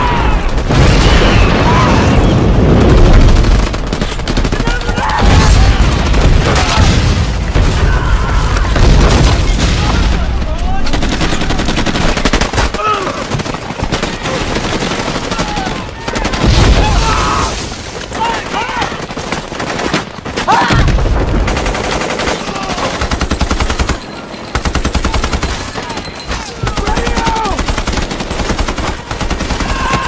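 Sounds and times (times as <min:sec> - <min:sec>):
automatic gunfire: 0:10.8 - 0:16.8
men shouting: 0:26.5 - 0:27.7.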